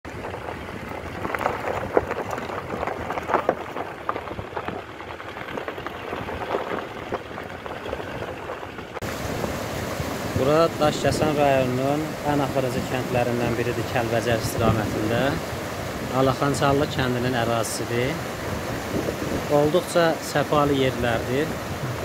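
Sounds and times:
stones cracking under wheels: 0:00.1 - 0:09.0
tyres crunching gravel: 0:00.1 - 0:22.0.

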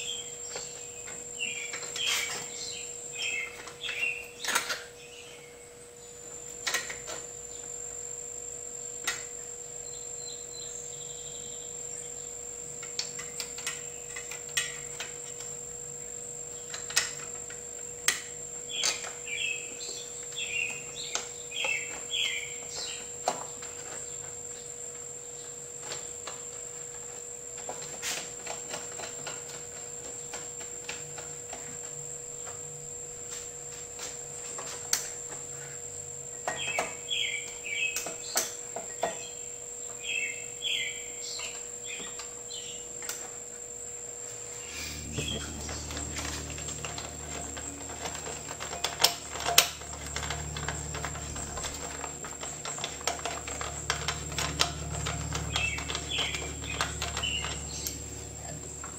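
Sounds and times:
faint high whine: 0:44.2 - 0:58.9
steady hum: 0:44.2 - 0:58.9
metal engine parts clicking: 0:45.1 - 0:58.9.

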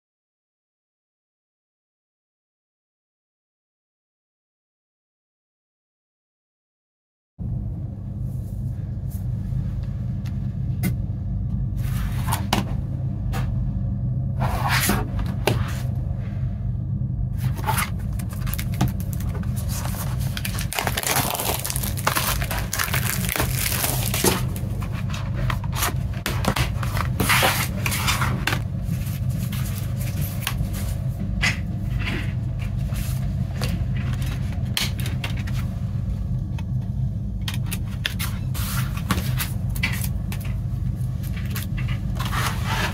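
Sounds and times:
steady low hum: 0:07.4 - 0:42.9
plastic wrap crinkling and tearing: 0:17.6 - 0:25.0.

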